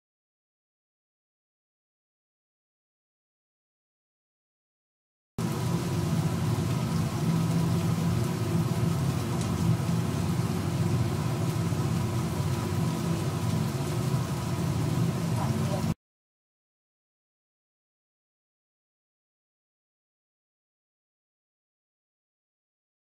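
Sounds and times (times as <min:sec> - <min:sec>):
hot oil sizzling and bubbling: 0:05.4 - 0:16.0
low hum: 0:05.4 - 0:16.0.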